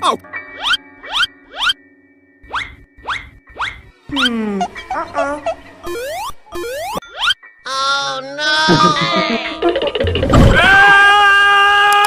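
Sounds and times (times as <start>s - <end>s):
sustained cartoon tone: 4.1s - 9.8s.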